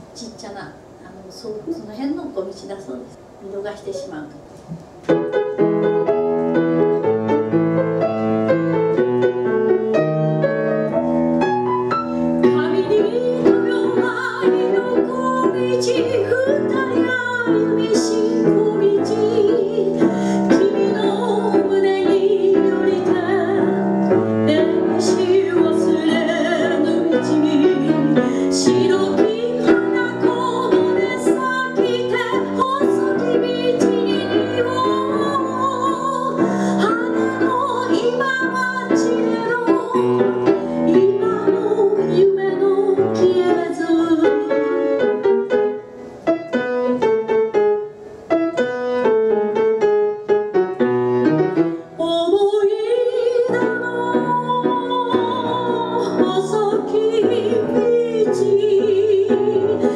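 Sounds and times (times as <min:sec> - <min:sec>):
grand piano playing tango: 0:04.9 - 0:59.9
woman singing into microphone: 0:12.4 - 0:44.9, 0:52.0 - 0:59.9.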